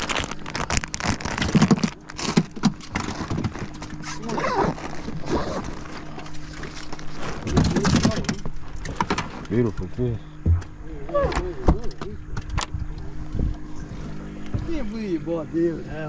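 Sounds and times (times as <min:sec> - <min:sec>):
plastic bag crinkling: 0:00.0 - 0:07.5
steady low hum: 0:00.0 - 0:16.0.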